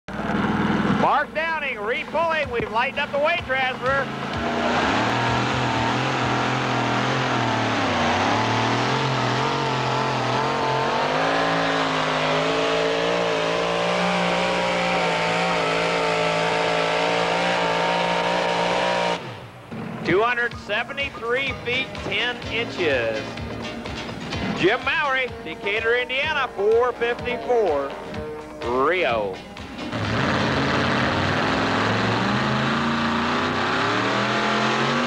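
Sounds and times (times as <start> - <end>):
truck engine running flat out: 0.1 - 25.0, 29.7 - 35.0.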